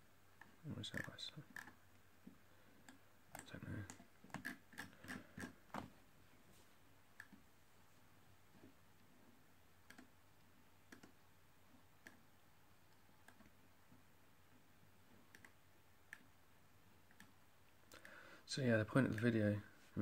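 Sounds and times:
computer mouse clicking: 9.8s - 10.1s, 10.9s - 11.2s, 12.0s - 12.2s, 12.9s - 13.6s, 15.3s - 16.3s, 17.1s - 17.4s.

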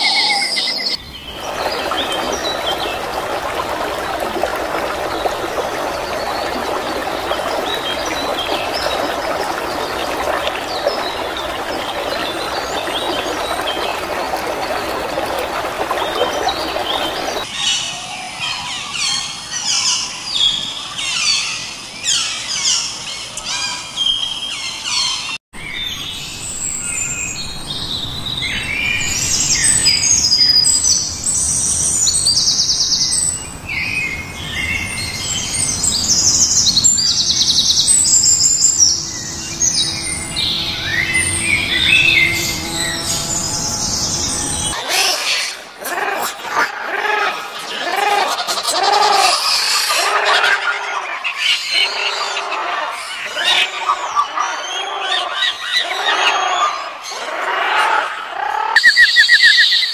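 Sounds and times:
songbirds chirping and trilling: 0.0s - 59.9s
steady rushing noise: 1.2s - 17.4s.

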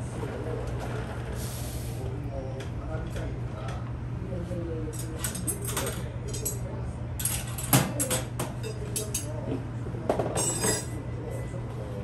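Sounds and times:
metal tools clinking and knocking: 10.4s - 11.0s.

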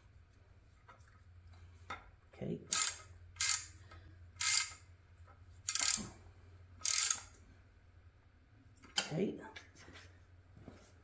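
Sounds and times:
wrench ratcheting: 2.7s - 3.8s, 4.4s - 4.8s, 5.7s - 6.1s, 6.8s - 7.3s.

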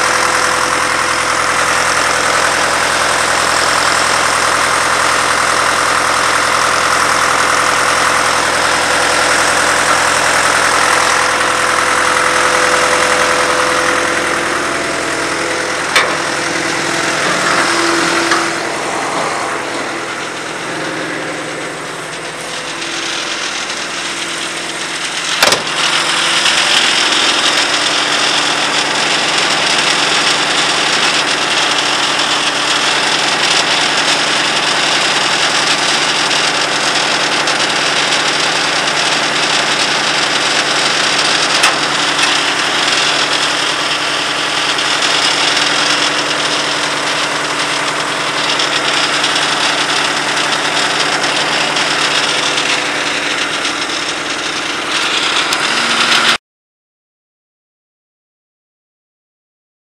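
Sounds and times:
drill rig engine idling: 0.0s - 56.4s
sharp knocks: 15.9s - 16.4s, 25.3s - 25.9s.

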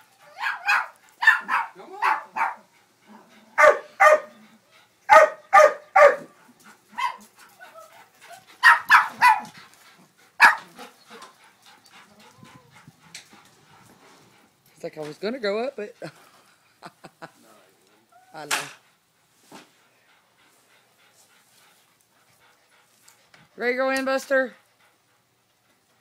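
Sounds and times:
dog barking: 0.4s - 2.6s, 3.6s - 4.3s, 5.1s - 6.3s, 8.6s - 9.5s, 10.4s - 10.7s.

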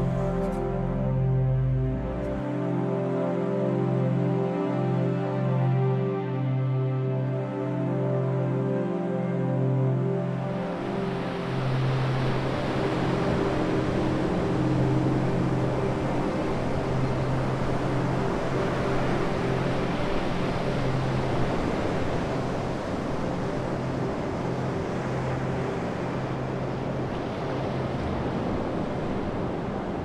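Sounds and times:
low steady hum: 0.0s - 2.7s
wind: 0.0s - 30.0s
waves breaking on a beach: 9.9s - 30.0s.

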